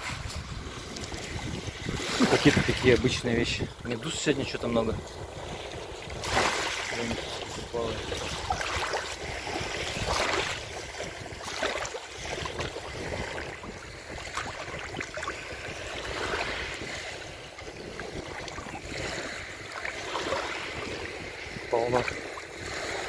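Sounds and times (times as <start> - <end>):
waves lapping on pebbles: 0.0 - 23.0
hand swishing in water: 6.2 - 16.9.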